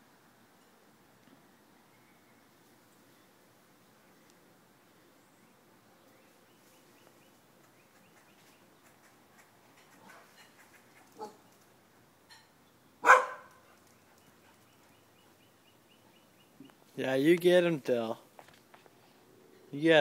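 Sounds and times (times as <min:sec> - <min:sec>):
dog yipping: 0:11.1 - 0:11.4, 0:13.0 - 0:13.6
small dog barking: 0:11.2 - 0:11.4, 0:13.0 - 0:13.7.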